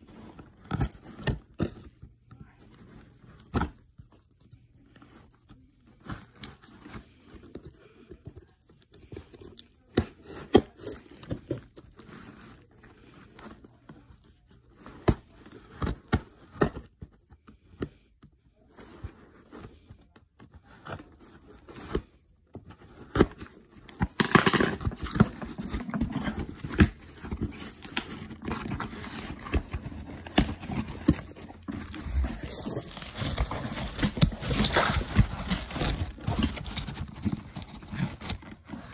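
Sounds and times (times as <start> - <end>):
packaging rustling and crinkling: 22.6 - 38.9.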